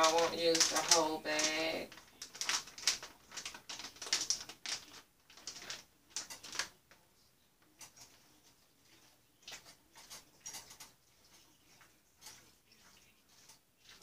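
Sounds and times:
plastic bag crinkling: 0.0s - 6.8s.

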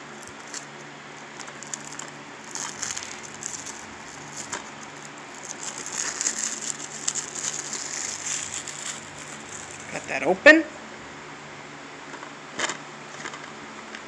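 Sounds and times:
plastic wrap crinkling: 0.0s - 10.2s.

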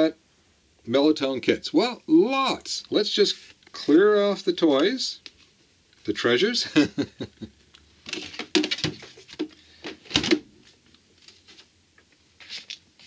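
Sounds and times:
handling clicks knocks and rattles: 8.0s - 10.5s.

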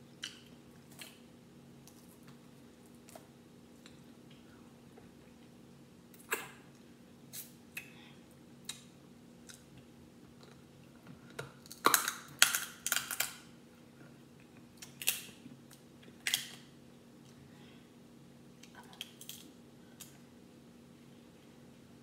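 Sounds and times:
crab shells cracking: 11.6s - 13.4s, 14.8s - 15.3s, 16.2s - 16.6s.

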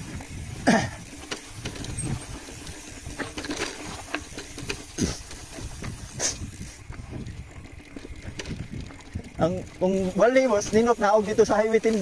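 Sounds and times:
bike clicks and rattles: 0.0s - 12.0s
tyre rumble on road: 0.0s - 12.0s
wind rushing over microphone: 0.0s - 12.0s.

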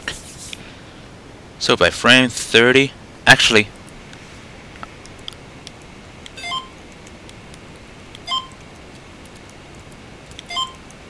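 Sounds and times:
faint clicks: 4.8s - 11.0s
electronic chirping beeps: 6.4s - 6.8s, 8.2s - 8.6s, 10.5s - 10.8s.

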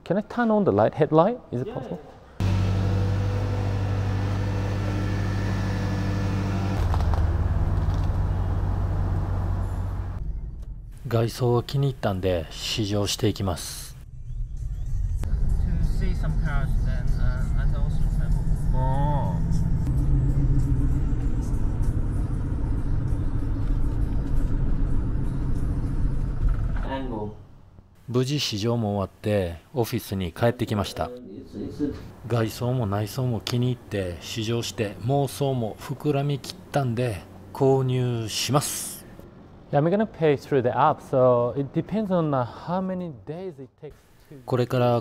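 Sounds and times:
van engine running: 2.4s - 10.2s, 16.4s - 26.9s.

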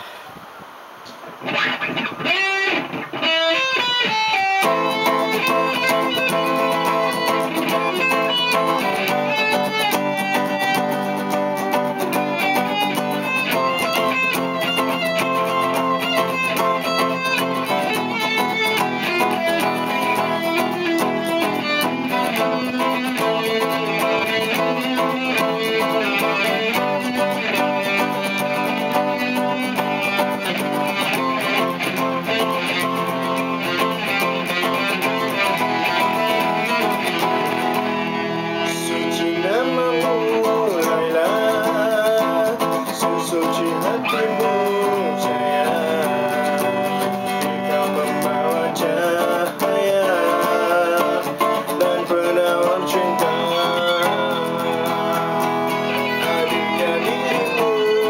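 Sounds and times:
electric guitar melody: 1.0s - 58.0s
fast beat accompaniment: 1.9s - 38.2s.

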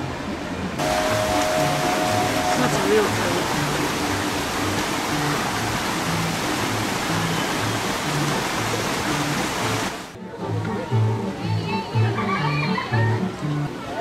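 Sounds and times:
running water from water wheel: 0.0s - 10.2s.

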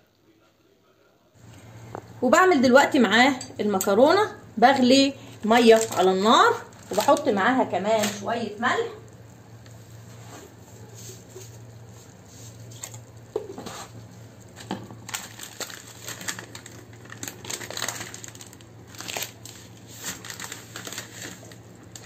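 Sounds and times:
plastic packet crinkling: 5.4s - 8.3s, 14.4s - 22.0s.

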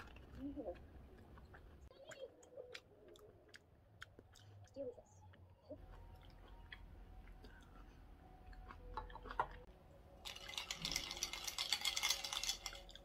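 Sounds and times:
ice cubes clinking in a glass: 10.2s - 13.0s.

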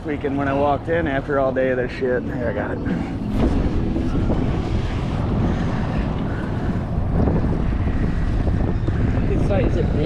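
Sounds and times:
wind rumbling on microphone: 0.0s - 10.0s
waves slapping boat: 2.2s - 10.0s.

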